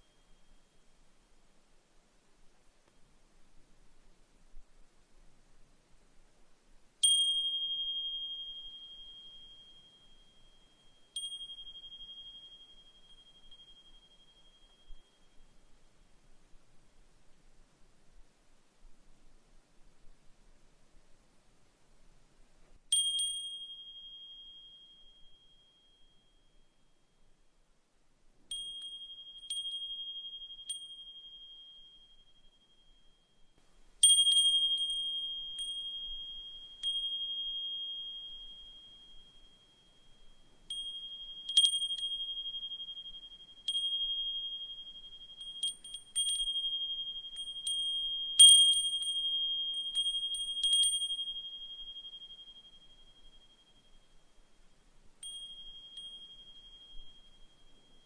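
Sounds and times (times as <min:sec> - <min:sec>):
wind chime ringing: 0:07.0 - 0:15.5, 0:22.9 - 0:26.7, 0:28.5 - 0:33.3, 0:34.0 - 0:54.6, 0:55.2 - 0:58.0.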